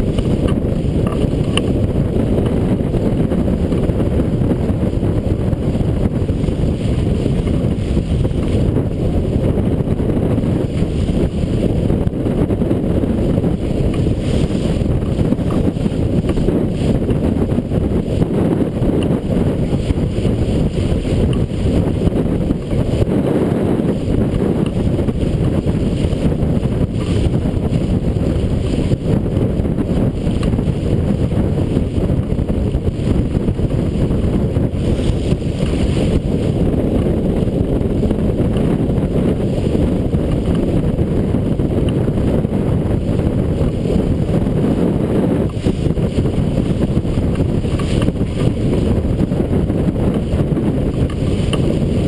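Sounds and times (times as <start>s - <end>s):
water rushing past hull: 0.0s - 52.0s
wind blasting microphone: 0.0s - 52.0s.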